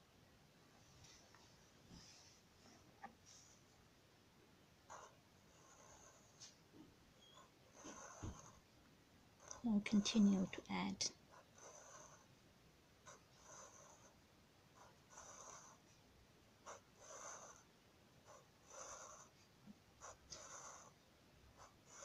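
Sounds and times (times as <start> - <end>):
marker drawing on paper: 7.2 - 8.6, 13.0 - 14.2, 14.8 - 15.9, 16.6 - 17.7, 18.3 - 21.0, 21.6 - 22.0.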